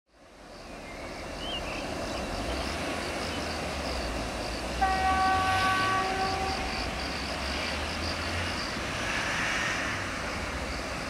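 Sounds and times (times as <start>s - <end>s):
locomotive air horn blast: 4.8s - 6.7s.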